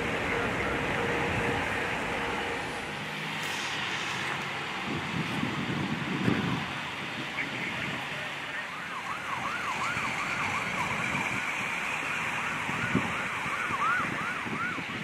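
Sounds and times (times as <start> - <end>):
wind noise: 0.0 - 8.2, 9.4 - 15.0
traffic: 0.0 - 15.0
siren yelping: 8.6 - 15.0.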